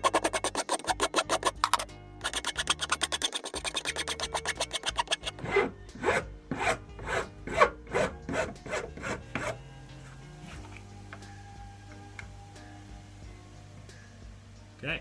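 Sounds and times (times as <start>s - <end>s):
wood rasp rasping: 0.0s - 9.6s.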